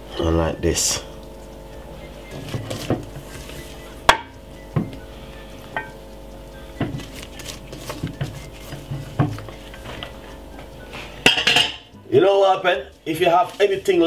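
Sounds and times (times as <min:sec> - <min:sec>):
faint hum: 0:00.0 - 0:14.0
glass bowl clinking: 0:11.2 - 0:11.9.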